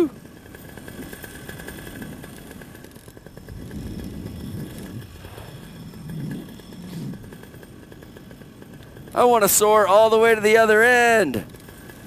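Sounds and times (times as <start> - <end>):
paramotor engine humming: 0.0 - 12.0
wind rushing over microphone: 3.3 - 7.6.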